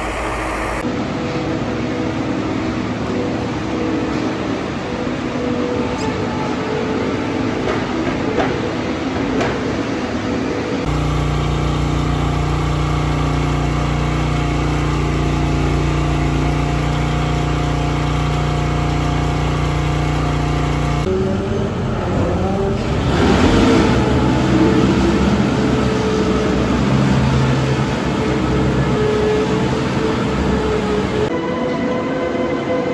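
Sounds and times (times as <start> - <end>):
feed mixer wagon running: 0.0 - 0.8, 10.9 - 21.1
milk feeder cart motor hum: 0.0 - 0.8, 10.9 - 21.1.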